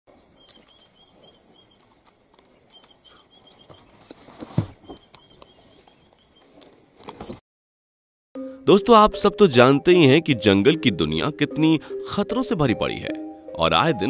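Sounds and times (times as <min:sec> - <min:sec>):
high chirping: 0:02.6 - 0:04.0.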